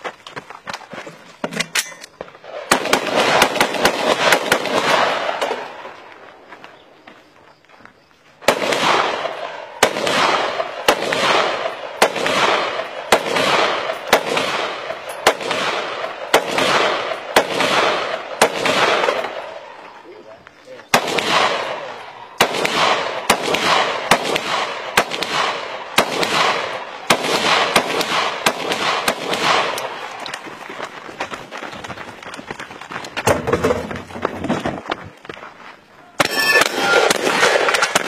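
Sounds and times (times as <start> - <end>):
rifle shots echoing: 1.8 - 6.0, 8.4 - 20.0, 20.9 - 30.3, 36.2 - 38.0.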